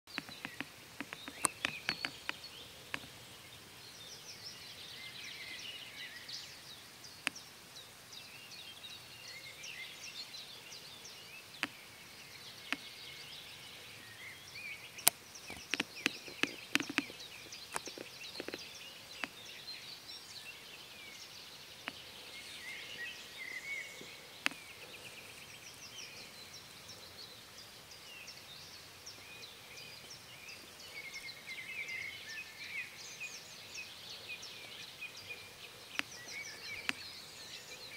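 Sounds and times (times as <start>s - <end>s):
sharp clicks: 0.1s - 3.1s, 15.0s - 18.6s
distant birds singing: 0.1s - 37.9s.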